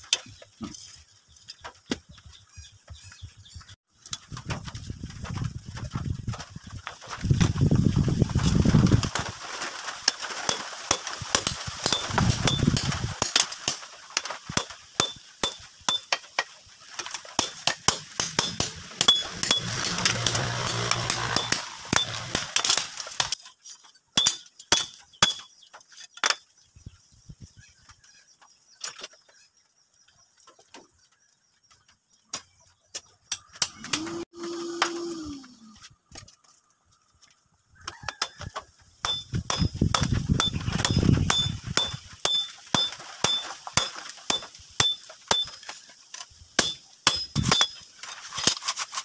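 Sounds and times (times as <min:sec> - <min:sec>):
hammer striking metal: 0:17.4 - 0:23.4, 0:39.0 - 0:45.6, 0:46.6 - 0:47.8.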